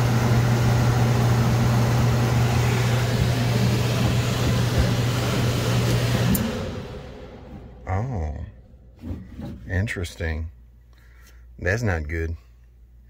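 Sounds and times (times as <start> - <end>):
air noise: 0.0 - 10.0
air handler electrical hum: 0.0 - 13.0.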